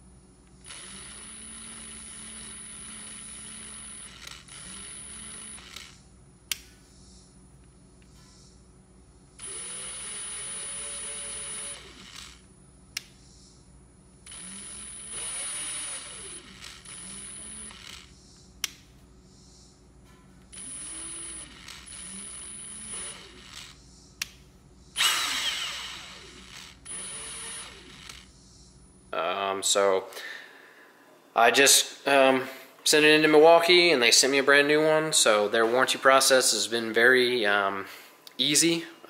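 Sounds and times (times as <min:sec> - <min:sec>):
impact wrench motor whine: 0:00.0 - 0:06.0, 0:09.4 - 0:12.5, 0:14.2 - 0:18.2, 0:20.4 - 0:23.8, 0:25.0 - 0:28.3.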